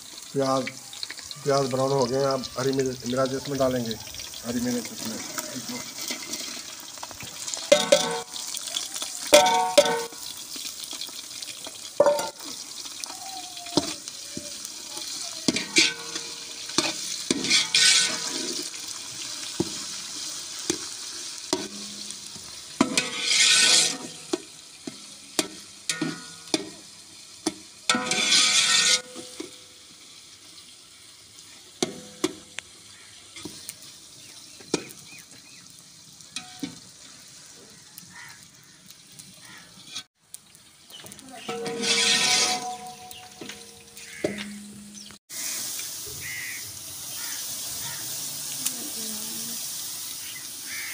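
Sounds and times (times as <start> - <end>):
onions sizzling in pot: 0.0 - 50.9
ladle scraping a pot: 15.5 - 18.7, 22.8 - 24.5, 27.9 - 29.5, 41.5 - 44.6.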